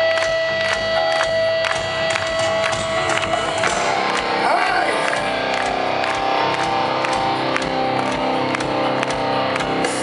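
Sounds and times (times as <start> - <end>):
electric guitar chords: 0.0 - 10.0
live rock band playing: 0.0 - 10.0
steady drum beat: 0.0 - 10.0.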